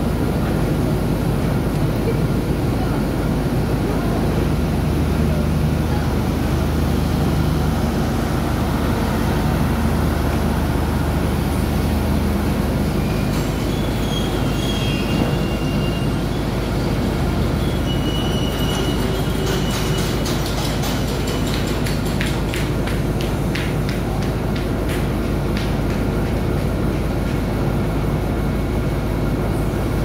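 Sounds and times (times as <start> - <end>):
train wheels rumbling on rails: 0.0 - 30.0
high-pitched wheel squeals: 13.0 - 16.6, 17.4 - 20.4.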